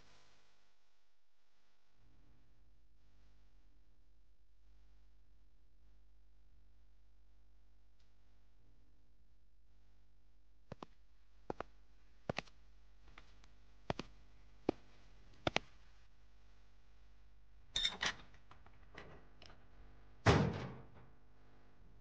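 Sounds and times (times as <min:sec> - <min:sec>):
heavy door slamming: 0:20.3 - 0:20.9.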